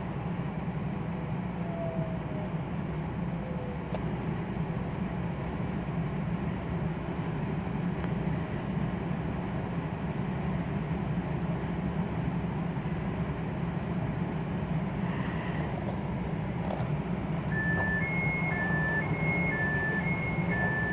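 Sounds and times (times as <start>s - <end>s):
train cabin low rumble: 0.0s - 20.9s
door chime beeps: 17.5s - 20.9s.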